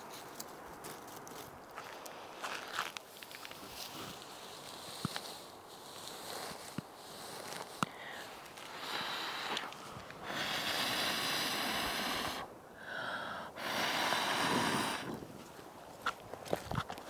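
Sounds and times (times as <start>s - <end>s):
person blowing on coals: 8.6s - 15.4s.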